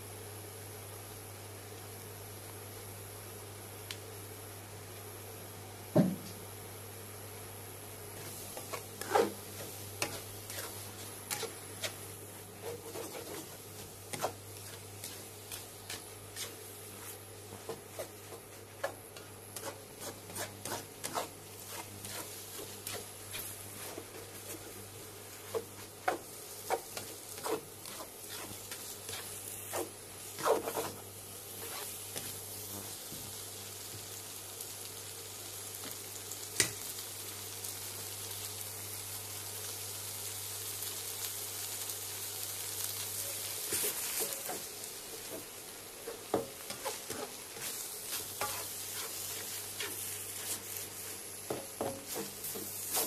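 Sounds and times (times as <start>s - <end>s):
spatula scraping and knocking wok: 8.2s - 32.4s, 43.6s - 53.0s.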